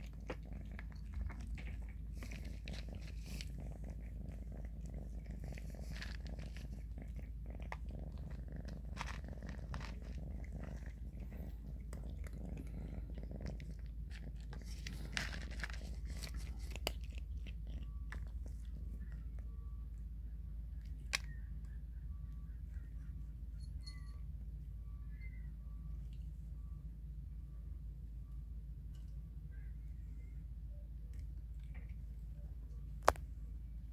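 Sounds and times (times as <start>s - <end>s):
kittens crunching dry kibble: 0.0s - 21.8s
cat purring: 0.0s - 33.9s.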